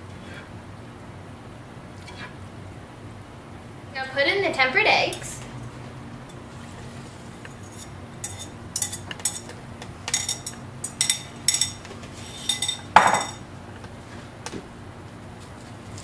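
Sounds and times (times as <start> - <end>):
utensil scraping a pan: 6.3 - 13.4
utensil clinking against bowl: 7.4 - 13.4.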